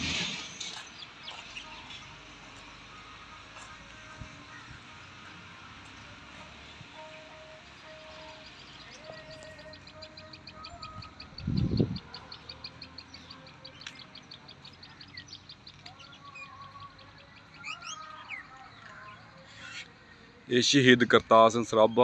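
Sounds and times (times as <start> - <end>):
other birds chirping: 3.5 - 22.0
bird chirping rapidly: 7.0 - 18.6.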